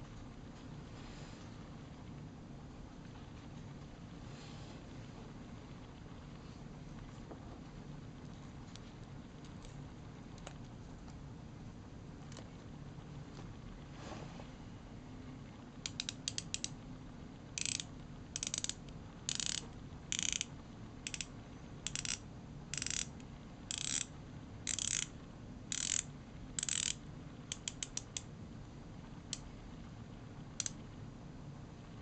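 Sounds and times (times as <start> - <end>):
watch bezel ratcheting clicks: 15.9 - 16.7, 17.6 - 20.5, 21.1 - 21.3, 21.9 - 23.1, 23.7 - 24.1, 24.7 - 25.1, 25.7 - 28.2.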